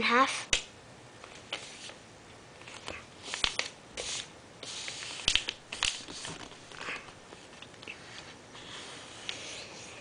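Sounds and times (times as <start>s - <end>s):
paper rustling and sliding: 2.6s - 10.0s.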